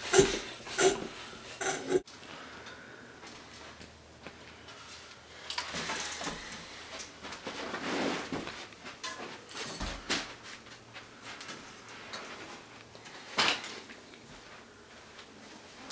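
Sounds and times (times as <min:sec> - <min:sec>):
bicycle rattling and scraping: 0:00.0 - 0:02.1.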